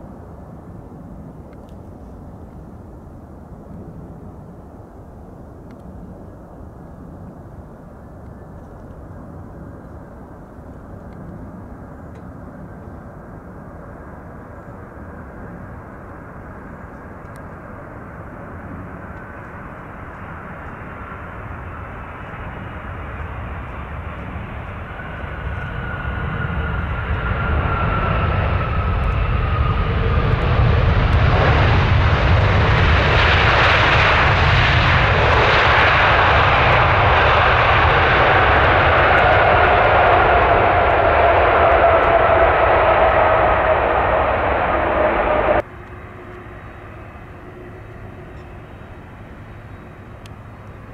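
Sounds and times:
jet engines roaring: 0:13.2 - 0:50.9
jet whine sliding down: 0:24.0 - 0:47.8.

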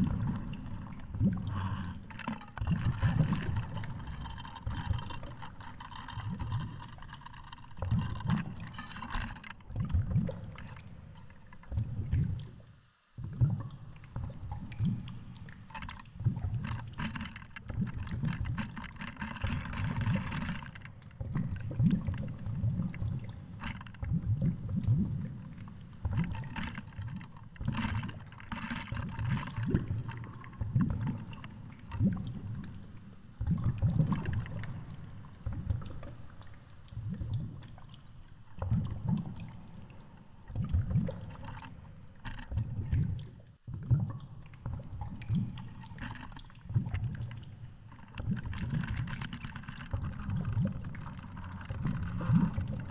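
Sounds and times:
clicks and water hiss: 0:00.0 - 0:52.9
low underwater rumbling thumps: 0:29.0 - 0:32.6, 0:33.3 - 0:37.8.

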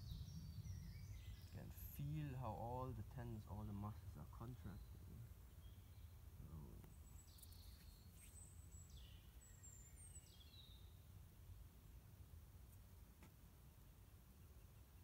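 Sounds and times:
high bird chirps: 0:00.0 - 0:02.1, 0:07.0 - 0:11.0
low steady rumble: 0:00.0 - 0:15.0.

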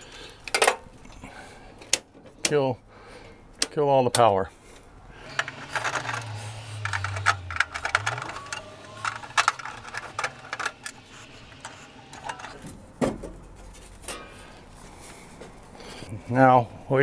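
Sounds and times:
low hum: 0:05.0 - 0:12.6
circuit breakers clicking: 0:05.2 - 0:12.6
plastic panel cover clacking: 0:05.3 - 0:13.6.

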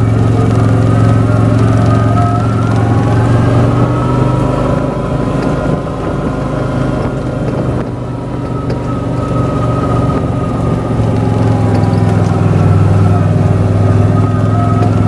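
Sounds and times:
quad bike engine running: 0:00.0 - 0:15.0
thin whine: 0:00.0 - 0:15.0.

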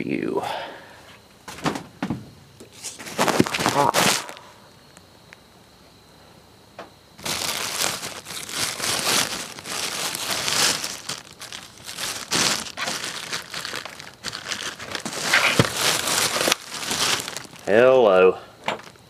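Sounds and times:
plastic bags crinkling: 0:02.8 - 0:04.5, 0:07.2 - 0:19.0.

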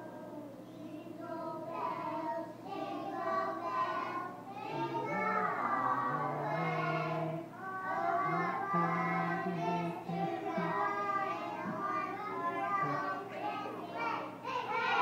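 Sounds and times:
children singing a carol: 0:00.0 - 0:15.0.

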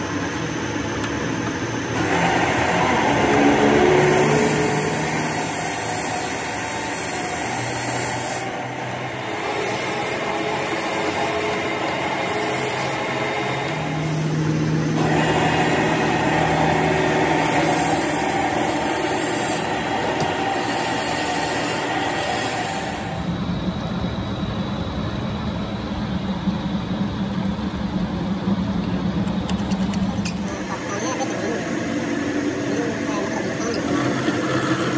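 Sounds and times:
metal lathe drilling steel: 0:02.0 - 0:23.4.

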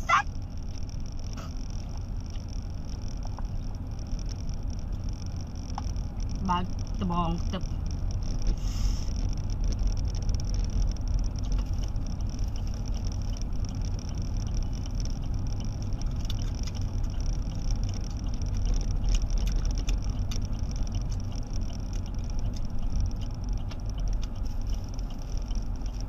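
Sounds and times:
car cabin road and engine rumble: 0:00.0 - 0:26.0.

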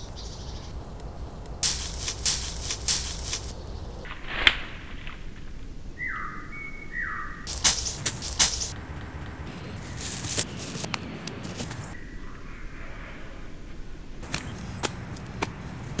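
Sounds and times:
rustling in dry leaves: 0:00.0 - 0:05.3, 0:07.5 - 0:12.0
sharp crack: 0:00.7 - 0:05.5, 0:07.5 - 0:12.0.

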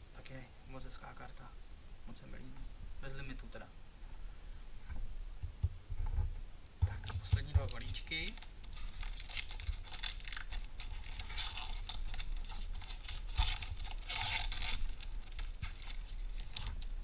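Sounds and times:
foil wrapper tearing and crinkling: 0:07.7 - 0:17.0.

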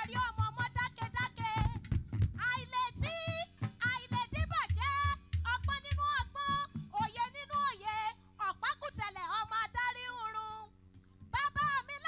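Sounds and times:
woman singing into microphone: 0:00.0 - 0:01.8, 0:02.4 - 0:10.7.

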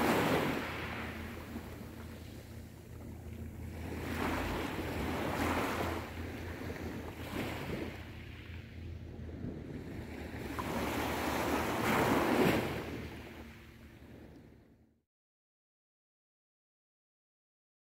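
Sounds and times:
small waves washing up beach: 0:00.0 - 0:14.3
wind rumble on microphone: 0:00.0 - 0:14.8.

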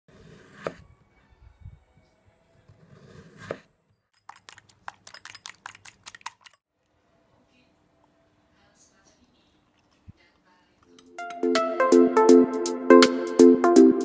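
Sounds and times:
knife slicing on plastic board: 0:00.1 - 0:00.8, 0:02.7 - 0:03.7
utensil beating eggs in bowl: 0:04.2 - 0:06.6.

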